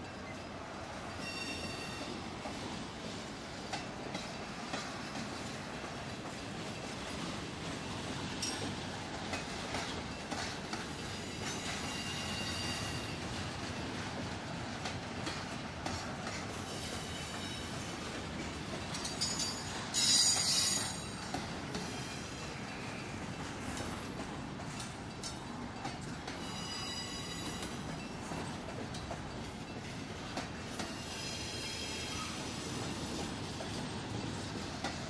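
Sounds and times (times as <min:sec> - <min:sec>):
rumble of train wheels: 0:00.0 - 0:35.0
high-pitched wheel squeals: 0:01.2 - 0:02.1, 0:26.4 - 0:27.7.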